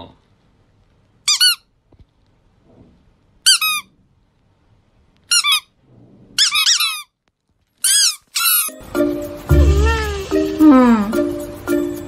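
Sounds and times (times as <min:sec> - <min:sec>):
squeaky toy squeaks: 0:01.2 - 0:01.7, 0:03.4 - 0:03.9, 0:05.3 - 0:05.8, 0:06.4 - 0:07.2, 0:07.8 - 0:08.8.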